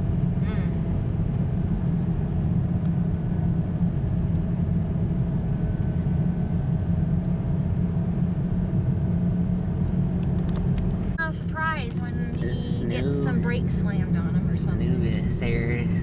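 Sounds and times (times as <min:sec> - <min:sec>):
car engine and tyre rumble on snow: 0:00.0 - 0:16.0.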